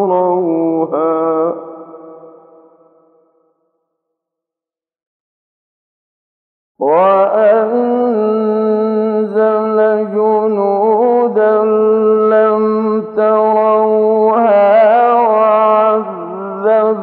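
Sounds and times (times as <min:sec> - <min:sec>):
man chanting melodically: 0:00.0 - 0:02.4, 0:06.8 - 0:17.0.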